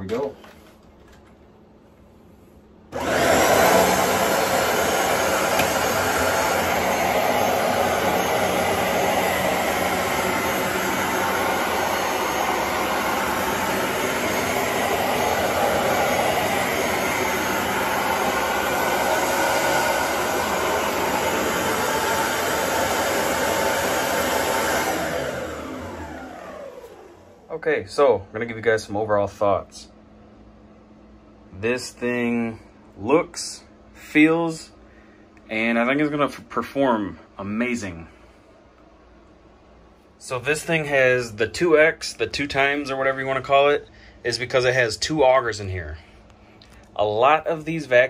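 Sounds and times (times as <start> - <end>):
carpet cleaner running: 2.9 - 28.6.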